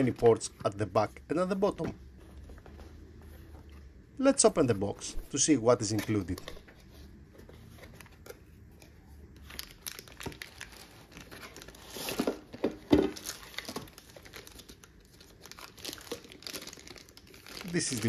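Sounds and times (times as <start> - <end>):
plastic bag crinkling: 9.4 - 18.0.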